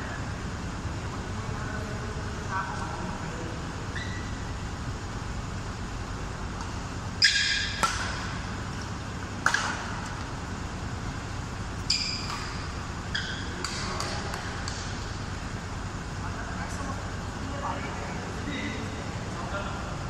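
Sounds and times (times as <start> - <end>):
shoes squeaking on court floor: 3.9 - 4.4, 7.2 - 9.0, 11.8 - 14.6
racket striking shuttlecock: 6.5 - 10.3, 11.8 - 15.2.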